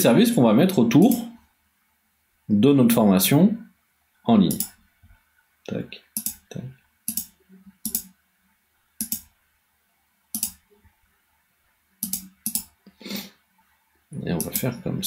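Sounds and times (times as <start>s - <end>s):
computer mouse clicking: 4.5s - 4.8s, 6.2s - 6.4s, 7.1s - 8.1s, 9.0s - 9.3s, 10.3s - 10.6s, 12.0s - 12.7s, 14.4s - 14.7s.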